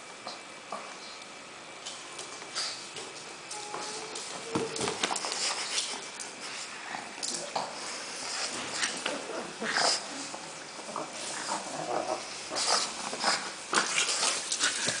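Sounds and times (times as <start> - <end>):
dogs snuffling and breathing: 1.9 - 15.0.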